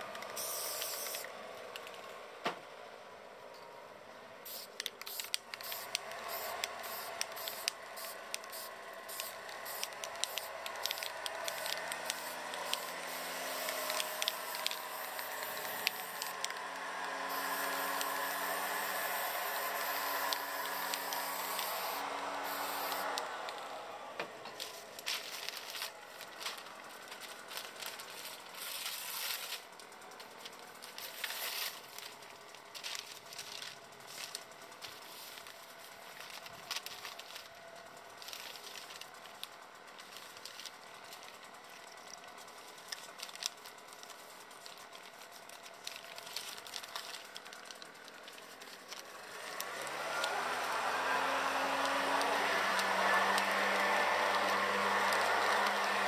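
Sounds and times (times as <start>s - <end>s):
spray paint can hissing: 0.3s - 1.3s, 4.4s - 23.3s, 28.2s - 29.6s, 30.4s - 32.0s
leaf blower droning: 5.8s - 29.4s, 49.0s - 56.0s.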